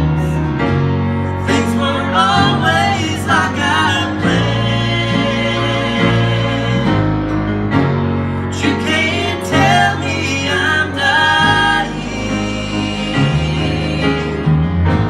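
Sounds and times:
grand piano accompaniment: 0.0s - 15.0s
man singing into a microphone: 1.4s - 7.0s, 8.5s - 14.4s.

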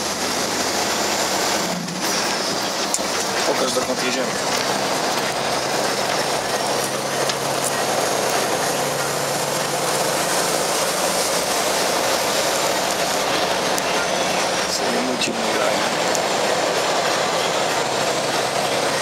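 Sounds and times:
road and tyre noise: 0.0s - 19.0s
truck diesel engine running: 0.0s - 19.0s.

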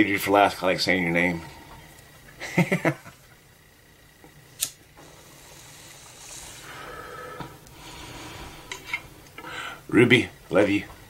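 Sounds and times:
sharp click: 4.6s - 4.8s
airy hiss of breath and flame: 5.0s - 8.9s.

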